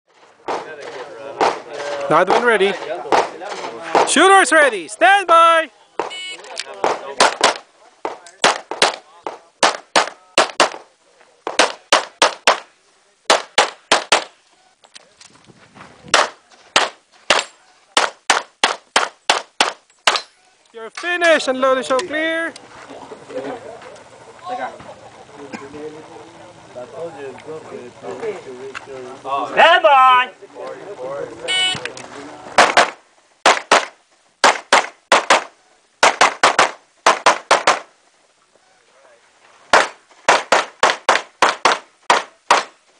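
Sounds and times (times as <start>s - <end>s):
pistol shots: 6.8s - 10.8s, 11.5s - 12.7s, 13.3s - 14.4s, 32.6s - 37.9s.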